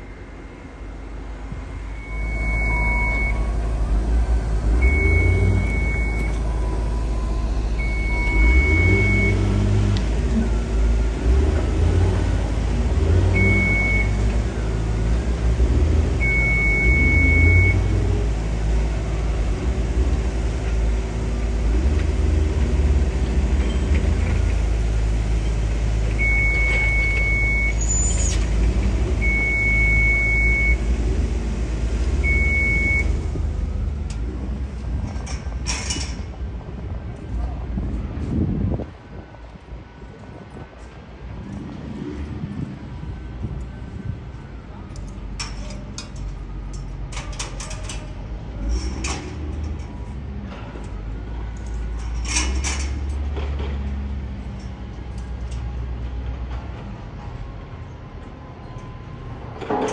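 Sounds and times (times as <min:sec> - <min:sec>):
heavy machinery engine rumbling: 0:00.0 - 0:59.9
warning beeper beeps: 0:01.9 - 0:03.5, 0:04.8 - 0:06.5, 0:07.2 - 0:09.5.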